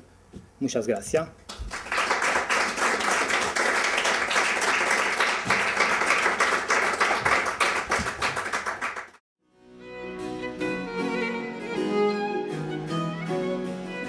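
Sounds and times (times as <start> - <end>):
audience applauding: 1.5 - 9.2
music: 9.4 - 14.0.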